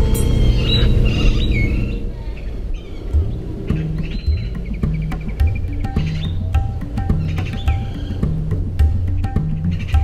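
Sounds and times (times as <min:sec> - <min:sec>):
birds chirping faintly: 0:00.0 - 0:10.0
background music with beat: 0:03.2 - 0:10.0.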